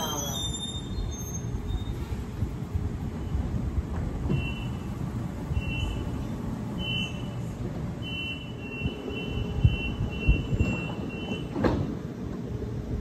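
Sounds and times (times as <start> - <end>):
low hum of standing train: 0.0 - 13.0
train door warning beeps: 4.2 - 11.9.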